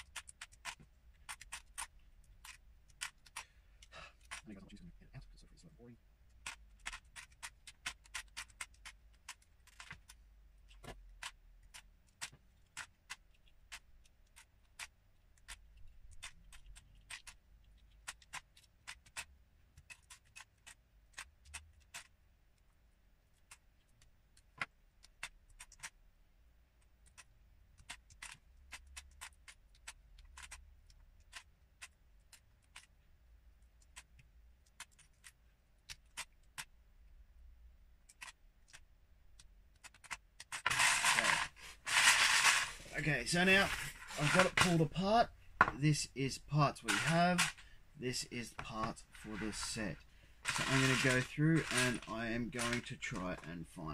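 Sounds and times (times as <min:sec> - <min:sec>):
lego bricks clicking apart: 0:00.0 - 0:04.4, 0:06.4 - 0:22.1, 0:27.1 - 0:33.0, 0:39.4 - 0:42.8, 0:46.9 - 0:47.6, 0:50.4 - 0:53.2.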